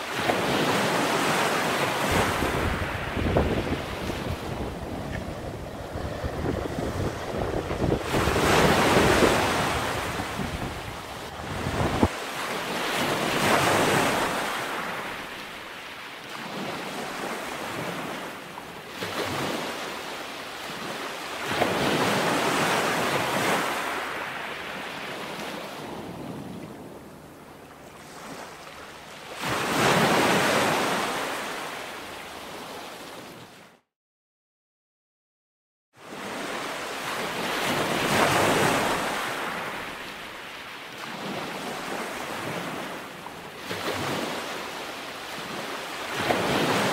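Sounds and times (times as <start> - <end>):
surf breaking on rocks: 0.1 - 12.3
wind buffeting microphone: 2.1 - 12.2.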